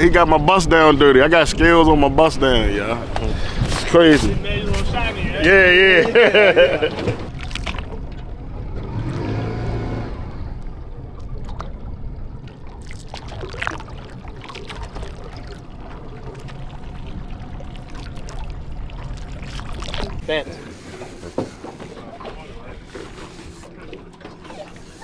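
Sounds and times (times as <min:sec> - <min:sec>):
water sloshing and trickling: 0:00.0 - 0:25.0
steady low rumble: 0:10.0 - 0:25.0.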